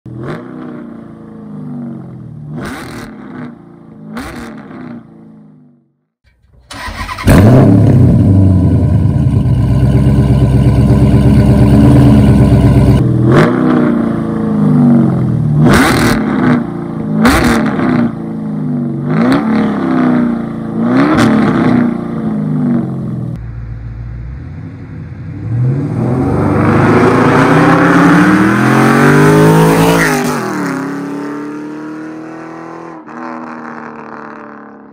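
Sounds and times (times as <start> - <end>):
car engine revving loudly: 7.1 - 18.2, 19.0 - 34.8.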